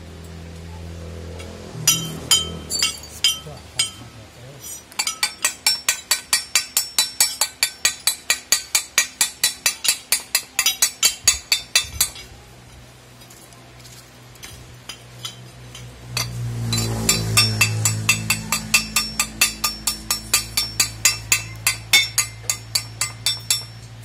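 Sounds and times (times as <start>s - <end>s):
low steady hum: 0.0s - 24.0s
steel tool tapping on steel: 1.9s - 4.1s, 4.9s - 12.3s, 14.9s - 24.0s.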